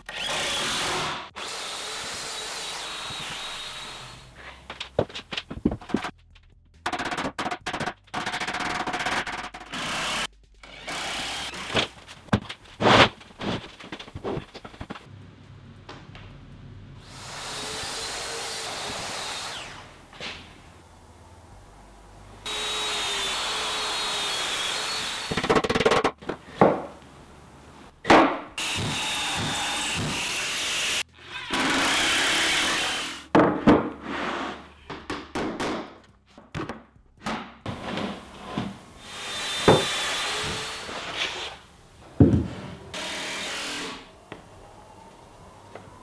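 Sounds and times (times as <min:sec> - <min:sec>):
plywood panels knocking: 0:39.6 - 0:40.6, 0:42.2 - 0:42.6.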